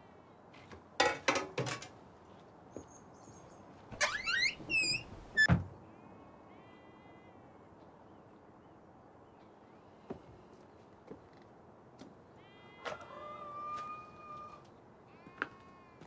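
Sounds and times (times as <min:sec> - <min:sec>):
door rattling: 0:03.9 - 0:05.6
door hinges creaking: 0:03.9 - 0:05.7
sheep bleating faintly: 0:06.0 - 0:07.6, 0:12.4 - 0:13.0, 0:15.1 - 0:16.0.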